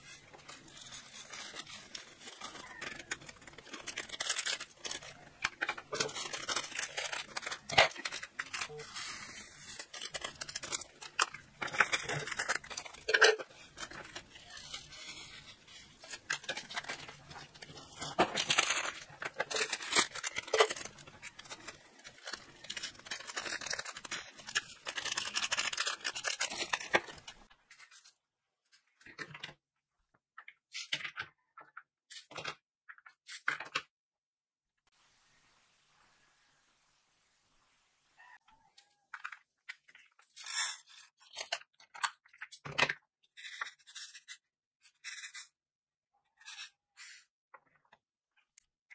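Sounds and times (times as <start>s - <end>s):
plastic bags crinkling: 0.0s - 27.5s.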